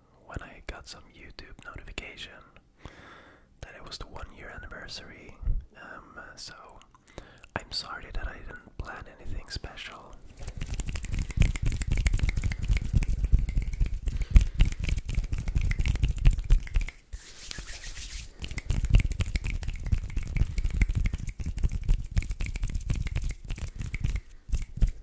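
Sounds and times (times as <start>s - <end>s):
palms rubbing and patting: 10.2s - 25.0s.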